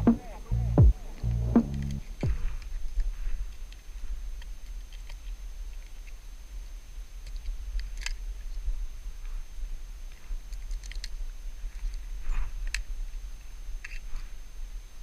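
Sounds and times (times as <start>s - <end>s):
steady low rumble: 0.0s - 3.2s.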